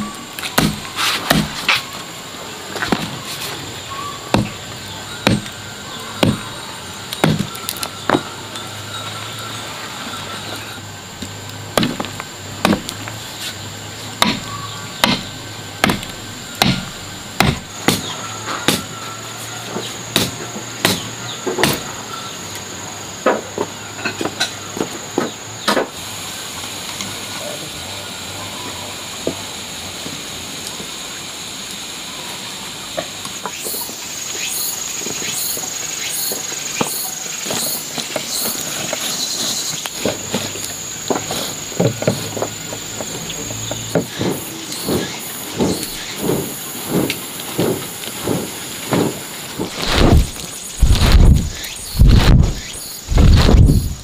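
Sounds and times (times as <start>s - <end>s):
steady hiss: 0.0s - 54.0s
knife chopping on wooden board: 0.6s - 1.6s, 14.2s - 18.9s.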